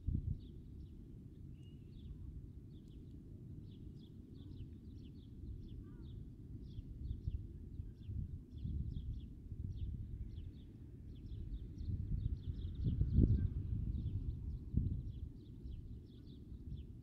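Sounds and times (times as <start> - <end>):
steady low rumble: 0.0 - 0.5, 11.2 - 16.0
small birds chirping: 0.4 - 3.1, 3.7 - 17.0.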